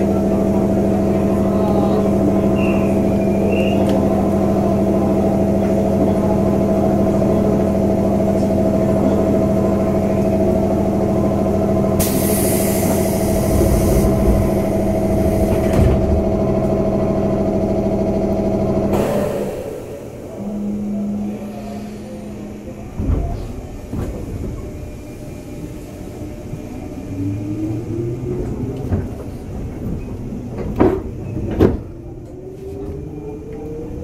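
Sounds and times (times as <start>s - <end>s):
electric train humming tones: 0.0s - 34.0s
wheels rumbling on rail: 0.0s - 34.0s
hiss: 12.0s - 15.8s.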